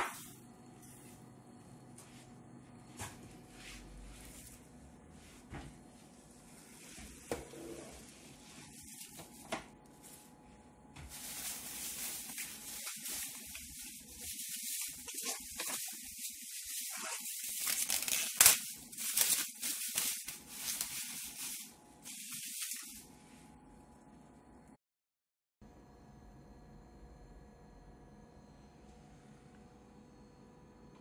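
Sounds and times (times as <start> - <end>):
plastic wrapping crinkling: 8.5 - 23.1.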